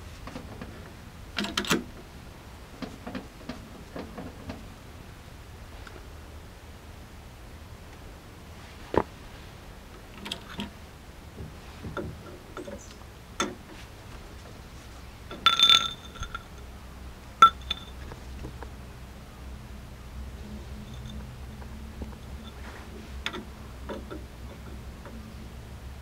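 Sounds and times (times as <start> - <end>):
metal handle clicking on jack: 1.4 - 1.9
ringing metallic clinks: 15.3 - 16.7, 17.4 - 18.0, 20.8 - 21.4.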